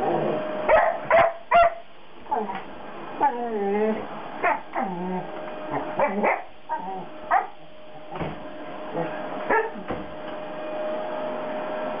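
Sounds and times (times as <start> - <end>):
vacuum cleaner humming: 0.0 - 1.2, 2.1 - 12.0
dog barking and yipping: 0.7 - 1.8, 4.4 - 4.8, 5.7 - 7.6, 9.5 - 9.8.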